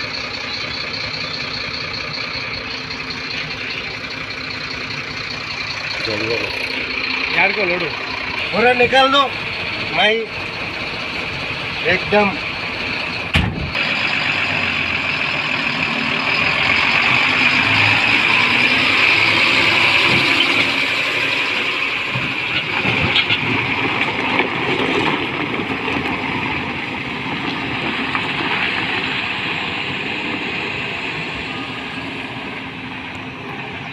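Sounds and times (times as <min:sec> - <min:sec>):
diesel truck engine running: 0:00.0 - 0:33.9
knocks from truck: 0:13.3 - 0:13.8.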